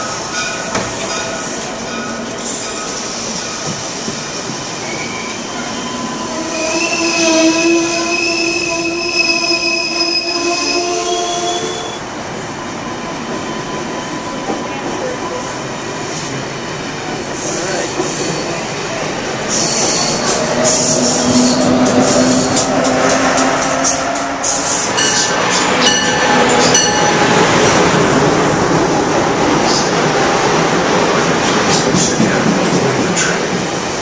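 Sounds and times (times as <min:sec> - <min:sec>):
high wheel squeal: 0:04.6 - 0:12.1, 0:17.4 - 0:18.8, 0:19.4 - 0:27.4.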